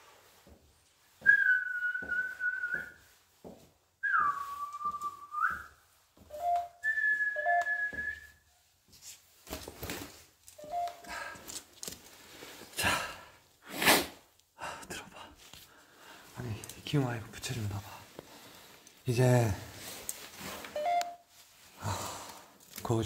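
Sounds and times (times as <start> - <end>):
long whistled notes: 1.2 - 3.1, 4.0 - 8.4, 10.6 - 11.1, 20.8 - 21.2.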